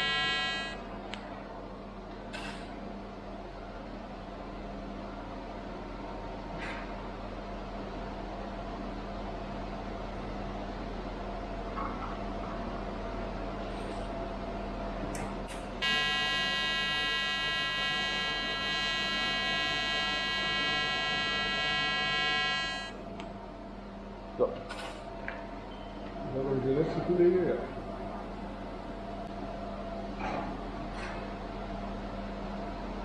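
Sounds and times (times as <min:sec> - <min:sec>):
welding arc buzzing: 0:00.0 - 0:00.9, 0:15.8 - 0:23.1.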